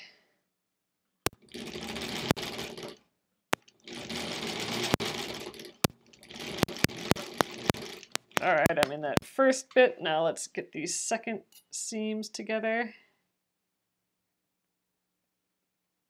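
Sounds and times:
sewing machine stitching: 0:01.3 - 0:03.0, 0:03.7 - 0:09.3
sharp clicks: 0:04.8 - 0:09.3.

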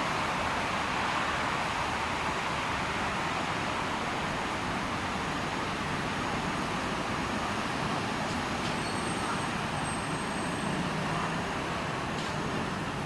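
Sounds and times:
city road traffic hum: 0:00.0 - 0:13.0.

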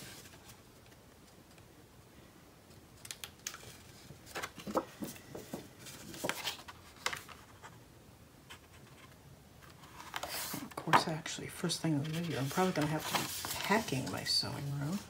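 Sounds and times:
paper rustling: 0:03.0 - 0:07.8, 0:08.5 - 0:11.1, 0:11.9 - 0:15.0.

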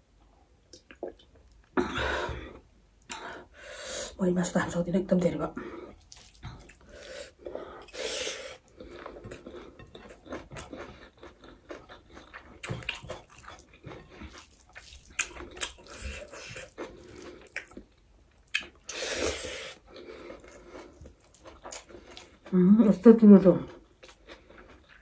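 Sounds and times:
chewing and mouth smacks: 0:05.9 - 0:07.1, 0:08.6 - 0:19.0, 0:19.7 - 0:22.5, 0:23.8 - 0:25.0.

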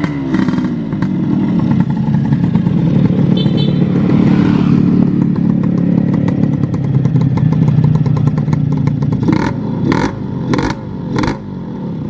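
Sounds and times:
two-stroke engine idling: 0:00.1 - 0:09.6.

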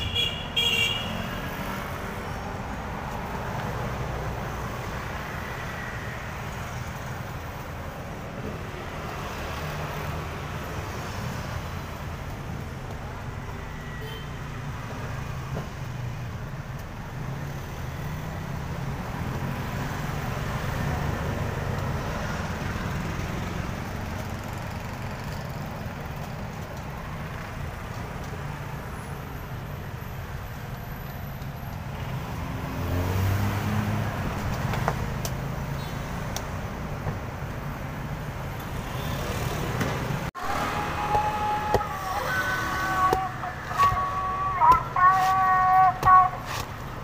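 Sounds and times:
street traffic rumble: 0:00.0 - 0:47.0
vehicle passing: 0:32.2 - 0:35.6
knife shaving coconut husk: 0:46.4 - 0:46.8.

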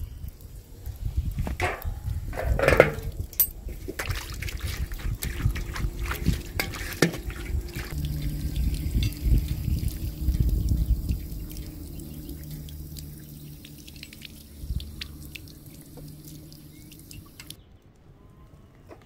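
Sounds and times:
water running from hose: 0:00.0 - 0:17.6
water splashing in metal tray: 0:01.5 - 0:17.6
knocks and clinks: 0:01.6 - 0:03.6.

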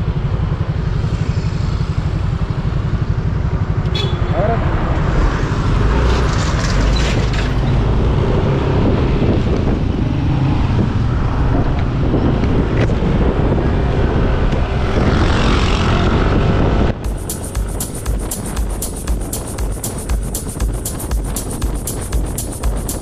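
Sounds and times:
scooter engine and tyres droning: 0:00.0 - 0:23.0
wind rushing over microphone: 0:04.6 - 0:23.0.

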